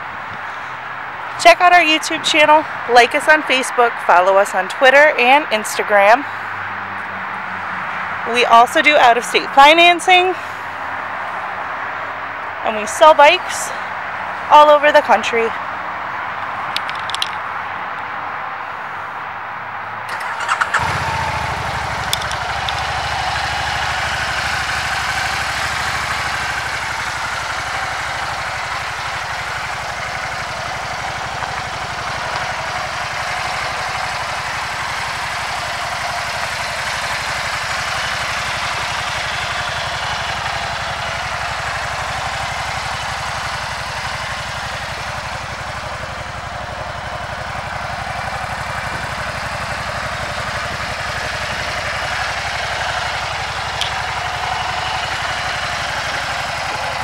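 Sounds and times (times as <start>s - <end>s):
motorcycle engine idling: 20.1s - 57.0s.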